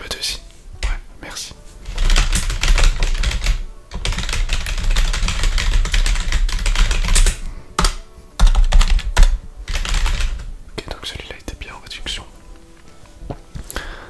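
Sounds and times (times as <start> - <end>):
crackly rustling and scratching: 1.7 - 7.4.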